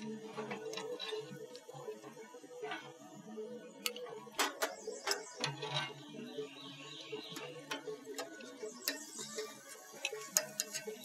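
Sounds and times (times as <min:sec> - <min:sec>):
tongs clicking on grill grates: 0:07.3 - 0:11.0.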